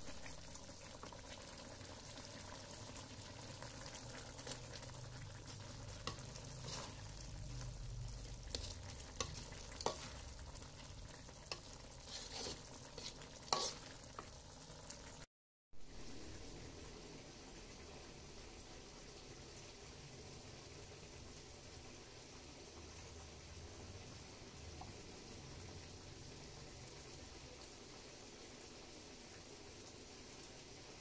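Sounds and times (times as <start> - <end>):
food sizzling in a wok: 0.0 - 31.0
metal ladle scraping wok: 5.4 - 7.6, 8.4 - 10.4, 11.5 - 14.3.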